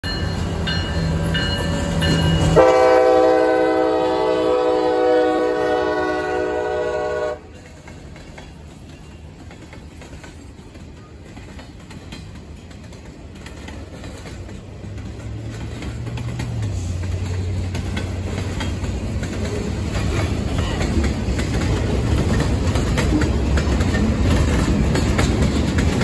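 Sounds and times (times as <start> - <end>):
bell ringing: 0.0 - 2.6
rail cars rolling past: 0.0 - 26.0
locomotive horn blast: 2.5 - 7.6.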